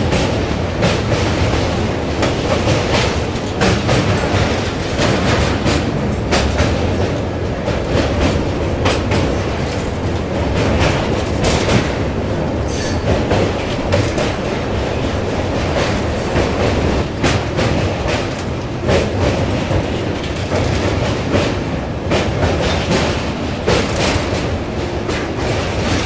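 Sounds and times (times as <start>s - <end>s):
train wheels rumbling on rails: 0.0s - 26.0s
wheels clicking and clattering: 0.1s - 26.0s.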